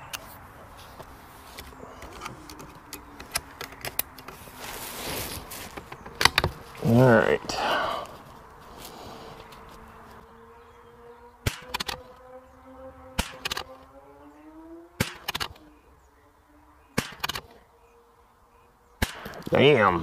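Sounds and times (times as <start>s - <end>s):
fly buzzing: 8.4s - 18.8s
rifle gunshots: 11.4s - 12.0s, 13.2s - 13.7s, 15.0s - 15.5s, 17.0s - 17.5s, 19.0s - 19.4s.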